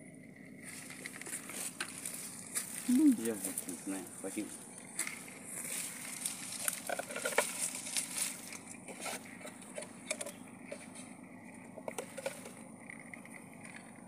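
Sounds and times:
grass rustling: 0.5s - 14.0s
crabs clicking in plastic bucket: 6.1s - 14.0s.

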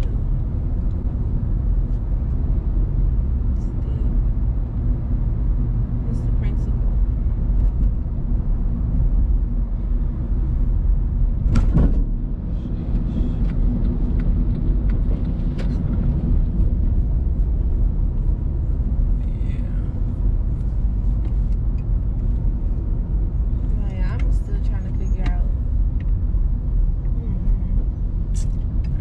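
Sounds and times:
engine and road rumble in car: 0.0s - 29.0s
short thump: 11.4s - 12.1s.

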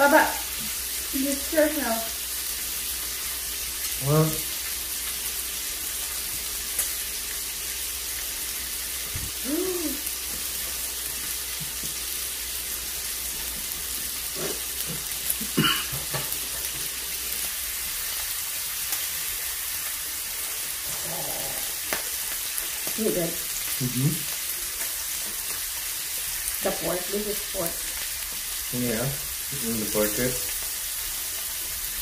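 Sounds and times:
meat sizzling on grill: 0.0s - 32.0s
hum-like voice: 9.4s - 10.0s, 20.9s - 21.8s.

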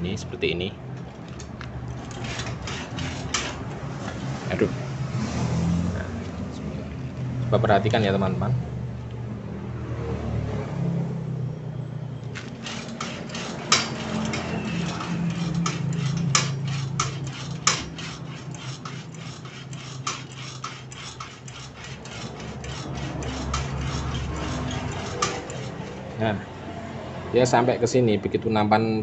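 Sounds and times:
metal linkage clicking and knocking: 1.3s - 3.6s, 12.7s - 26.0s
metal clanks: 12.9s - 18.1s.

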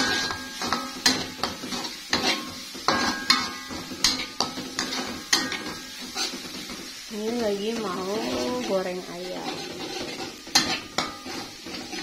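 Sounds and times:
metal spatula scraping a wok: 0.0s - 12.0s.

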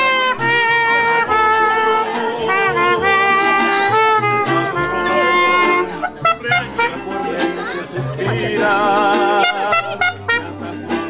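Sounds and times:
trumpet melody with vibrato: 0.0s - 7.4s, 9.3s - 10.7s
strummed guitars: 0.0s - 11.0s.

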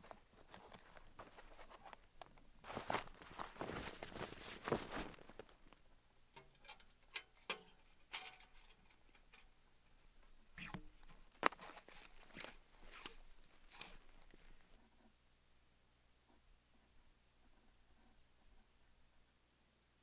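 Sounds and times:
footsteps crunching in snow: 0.0s - 2.0s, 2.6s - 5.6s, 11.3s - 14.7s
tent zipper and fabric rustling: 2.6s - 5.5s, 11.5s - 14.6s.

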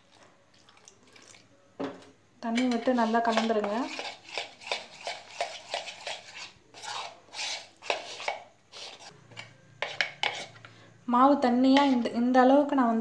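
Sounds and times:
spoon stirring batter in bowl: 2.4s - 10.8s, 11.7s - 12.1s.

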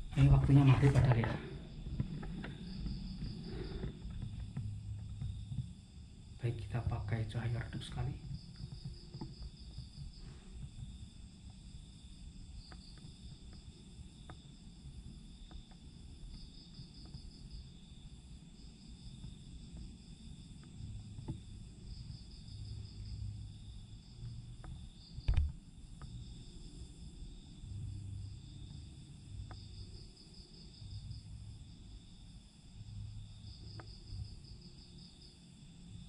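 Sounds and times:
crickets chirping: 0.0s - 36.0s
faint low hum: 0.0s - 36.0s
small ticks: 1.6s - 31.4s, 33.3s - 35.0s.

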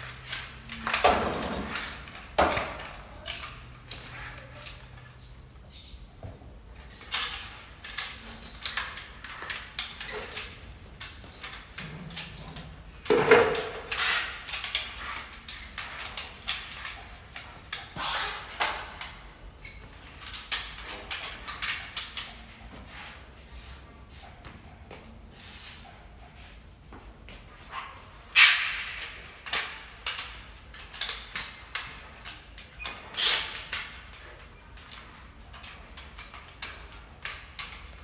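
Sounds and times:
mop swishing on tiled floor: 13.1s - 20.0s, 22.3s - 28.3s.

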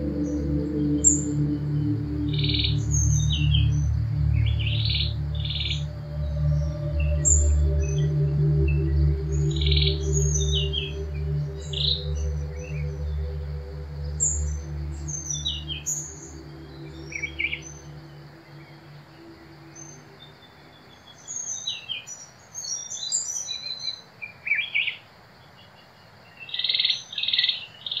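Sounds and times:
low background music: 0.0s - 21.0s
birds chirping and calling: 0.0s - 24.0s.

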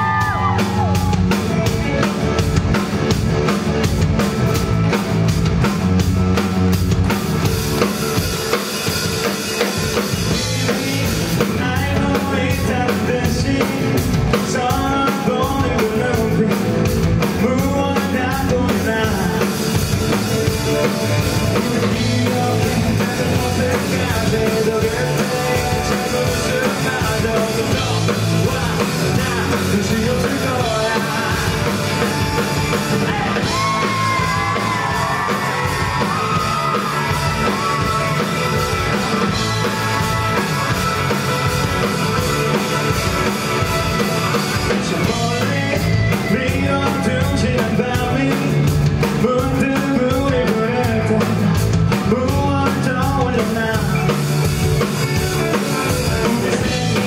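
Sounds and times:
drum kit: 0.0s - 57.0s
electric bass: 0.0s - 57.0s
lead vocal singing: 10.2s - 19.9s, 20.8s - 41.5s, 44.6s - 54.2s, 55.4s - 57.0s.

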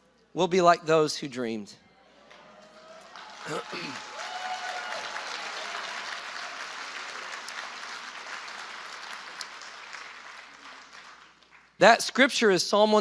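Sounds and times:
congregation applauding: 2.3s - 11.8s.

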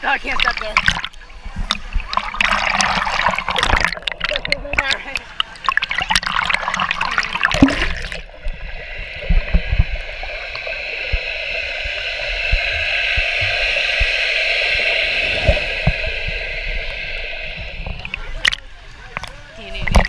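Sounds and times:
muffled underwater rush: 0.0s - 20.0s
river water splashing: 2.0s - 9.2s
low underwater thumps: 7.4s - 20.0s.

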